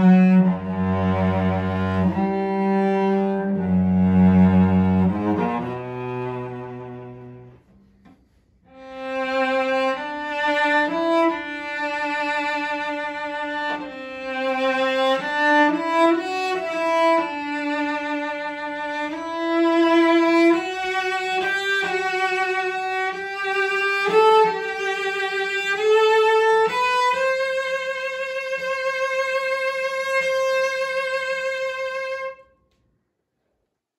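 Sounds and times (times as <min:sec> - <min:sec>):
solo bowed cello melody: 0:00.0 - 0:32.6.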